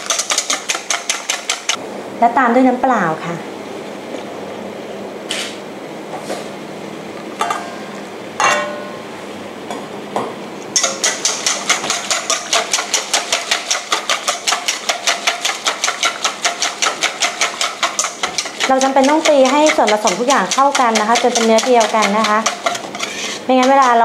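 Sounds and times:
whisk clattering in metal bowl: 0.0 - 1.8, 10.8 - 24.0
metal bowls clinking: 8.4 - 9.0.

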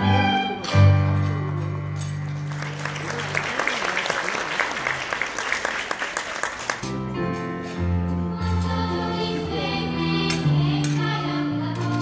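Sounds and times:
audience applauding: 1.2 - 6.9.

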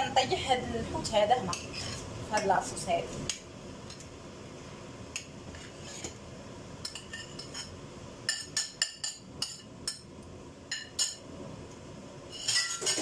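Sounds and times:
metal spoon clinking on ceramic plate: 12.4 - 13.0.

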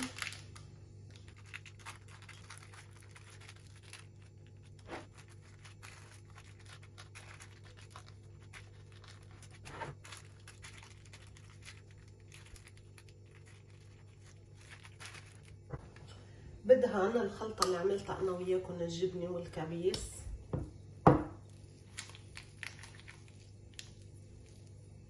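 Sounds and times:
baking paper crinkling: 0.0 - 16.1, 21.4 - 25.0
steady low hum: 0.0 - 25.0.

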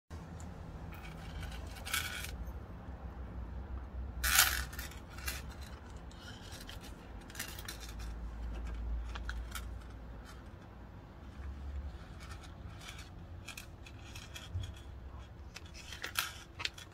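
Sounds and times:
scraping rustles: 4.2 - 16.9.

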